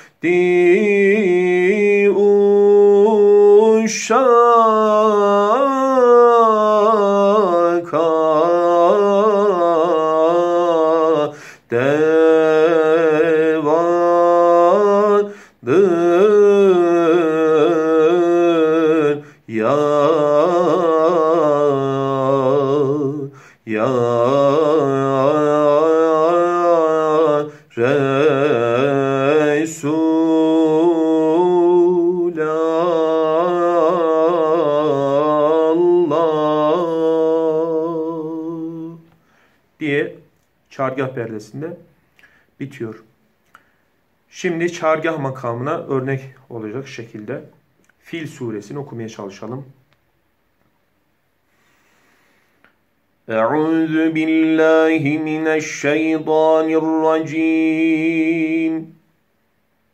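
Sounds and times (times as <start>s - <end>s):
singer's short breaths: 0.0s - 0.2s, 11.3s - 11.7s, 15.3s - 15.6s, 23.3s - 23.7s, 39.1s - 39.8s, 42.0s - 42.6s, 43.5s - 44.0s, 51.4s - 52.9s
man singing unaccompanied: 0.0s - 43.2s, 44.2s - 49.8s, 53.2s - 59.2s.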